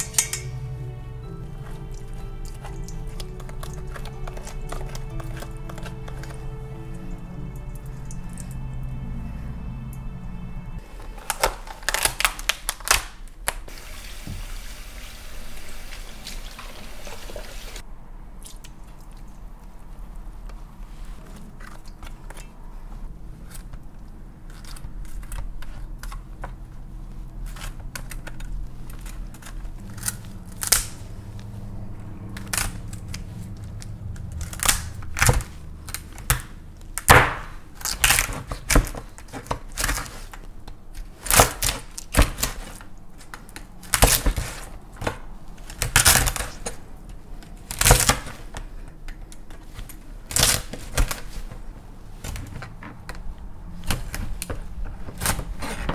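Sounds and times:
knife cracking crab shells: 1.8 - 6.6, 11.1 - 13.7, 27.4 - 31.0, 32.4 - 46.8.

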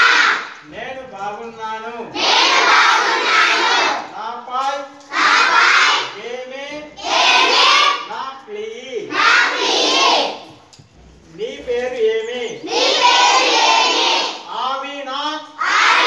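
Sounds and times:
children reciting in unison: 0.0 - 0.7, 2.1 - 4.2, 5.0 - 8.2, 9.1 - 10.5, 12.5 - 14.6, 15.5 - 16.0
man speaking: 0.6 - 2.2, 6.1 - 7.0, 8.1 - 9.2, 11.2 - 12.7.

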